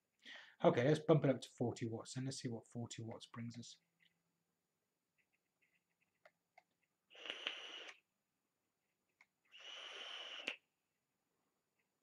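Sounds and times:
electronic cigarette hissing puffs: 0:07.1 - 0:08.1, 0:09.4 - 0:10.7.

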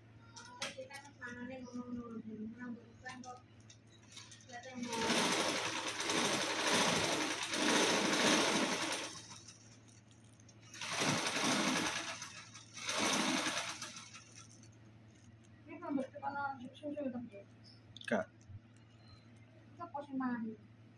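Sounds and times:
plastic bag crinkling: 0:09.2 - 0:11.2.

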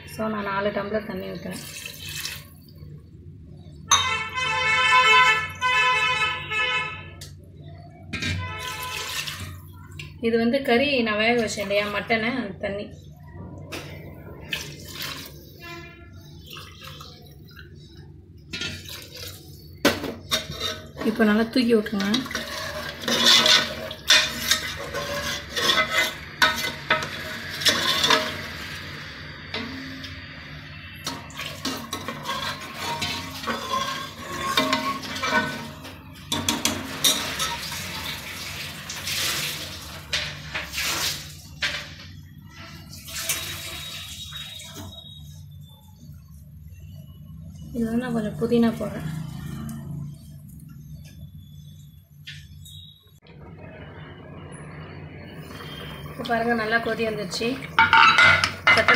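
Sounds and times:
broth pouring and splashing: 0:01.5 - 0:02.8, 0:08.6 - 0:10.1, 0:14.2 - 0:21.0, 0:22.1 - 0:30.4, 0:31.1 - 0:41.7, 0:42.8 - 0:45.2
liquid sloshing: 0:01.5 - 0:02.8, 0:08.5 - 0:10.0, 0:13.7 - 0:21.3, 0:21.9 - 0:28.6
metal ladle scraping and clinking pot: 0:18.5 - 0:30.2, 0:31.0 - 0:38.2, 0:57.4 - 0:58.9
metal tumbler clinking on pot: 0:31.7 - 0:37.8, 0:57.7 - 0:58.9.

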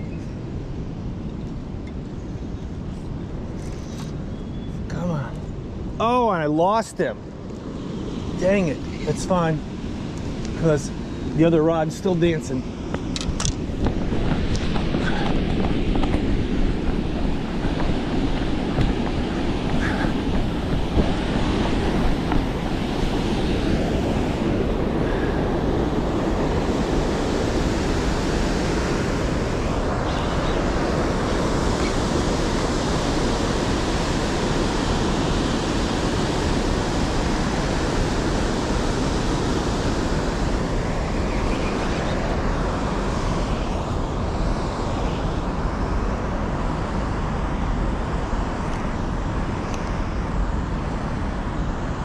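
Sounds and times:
wind on microphone: 0:07.6 - 0:52.0.

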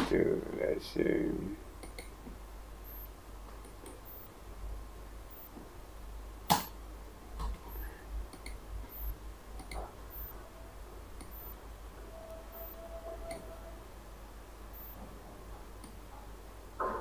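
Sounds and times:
computer mouse clicking: 0:02.9 - 0:04.3, 0:06.5 - 0:06.7, 0:07.5 - 0:10.4, 0:11.2 - 0:11.6.

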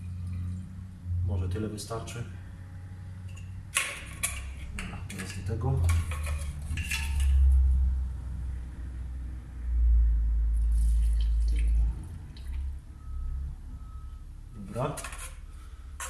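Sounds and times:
kerosene trickling through funnel: 0:10.6 - 0:12.8.

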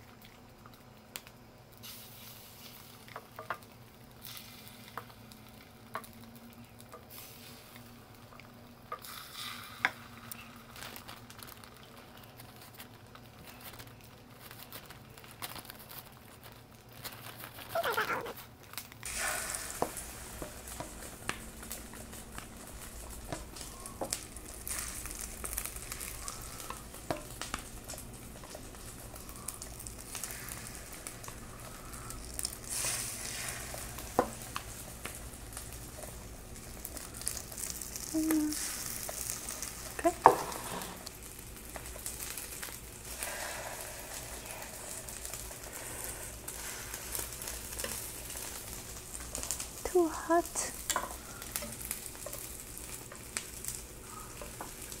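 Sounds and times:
food sizzling in oil: 0:00.0 - 0:15.3, 0:16.3 - 0:55.0
chopsticks clicking on a pan: 0:50.8 - 0:52.5.

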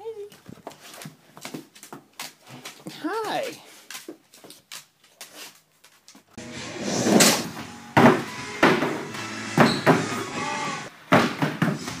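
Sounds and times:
music: 0:06.4 - 0:10.9, 0:11.6 - 0:12.0
skateboard hitting wooden ramps: 0:06.9 - 0:10.2, 0:11.1 - 0:12.0.

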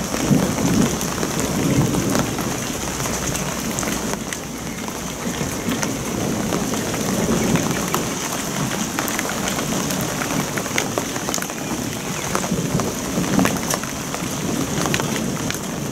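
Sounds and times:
rain falling: 0:00.0 - 0:15.9.

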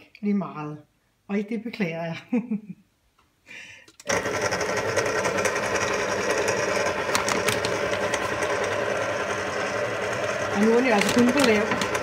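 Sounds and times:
stand mixer motor running: 0:04.1 - 0:12.0.

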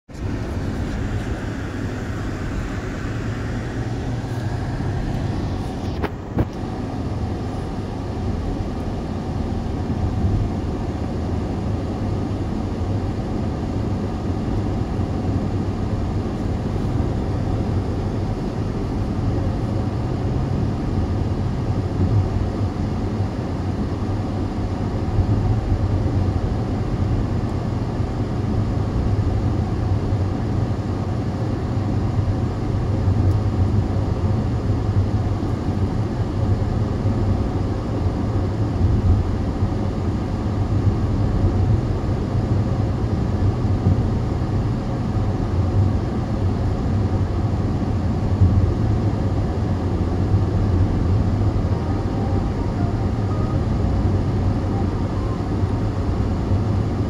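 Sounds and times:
car road noise rumble: 0:00.0 - 0:57.0.

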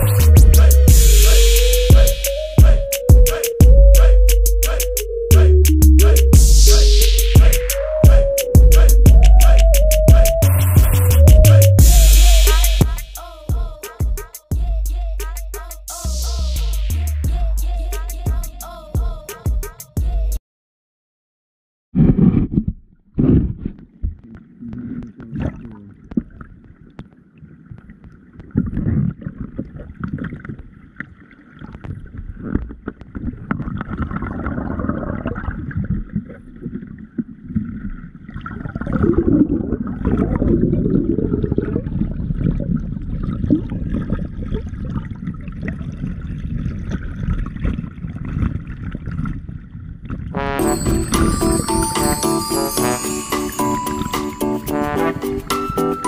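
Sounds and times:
low rumble: 0:00.0 - 0:02.7, 0:03.6 - 0:07.7, 0:08.6 - 0:13.7, 0:14.6 - 0:18.4.

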